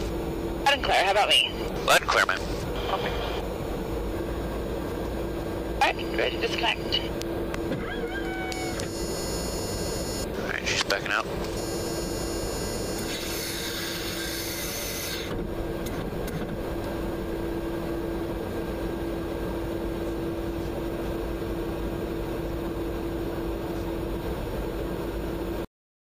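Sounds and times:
aircraft cabin airflow and engine drone: 0:00.0 - 0:25.7
steady hum: 0:00.0 - 0:25.7.

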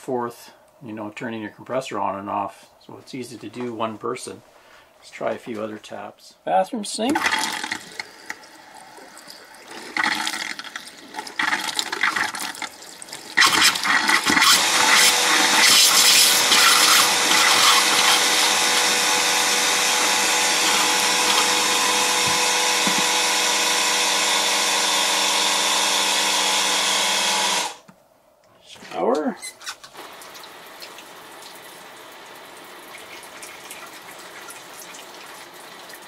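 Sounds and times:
faucet sputtering air and water: 0:07.0 - 0:24.4, 0:29.4 - 0:36.0.

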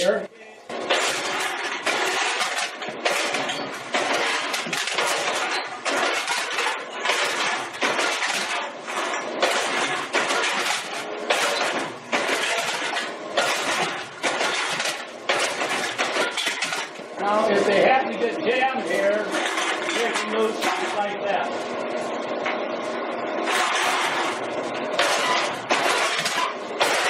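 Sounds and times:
cans crunching and metal clatter: 0:00.8 - 0:17.1, 0:18.8 - 0:21.2, 0:23.5 - 0:24.4, 0:25.0 - 0:27.0.

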